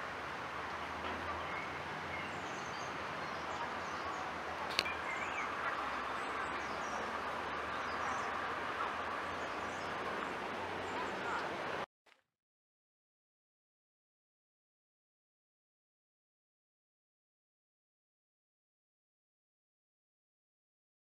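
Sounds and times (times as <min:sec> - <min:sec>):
outdoor background hiss: 0:00.0 - 0:11.9
faint bird chirps: 0:01.2 - 0:11.5.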